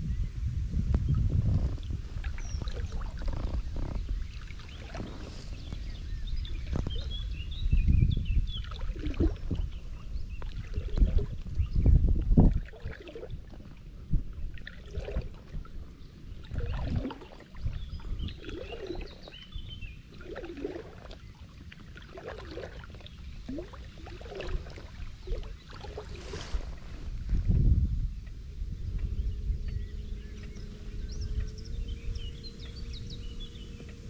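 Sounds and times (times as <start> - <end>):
water lapping against float tube: 1.1 - 34.0
small splashes: 1.5 - 5.9, 8.6 - 27.6
low rumble: 26.1 - 34.0.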